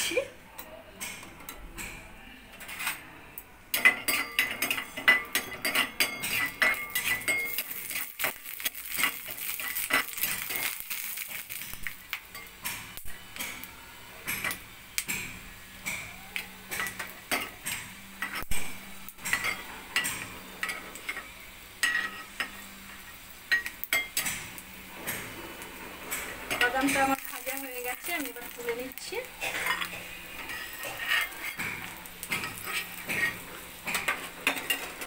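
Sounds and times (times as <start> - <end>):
faint sizzle of frying: 0.0 - 35.0
metal spatula scraping metal pan: 26.1 - 35.0.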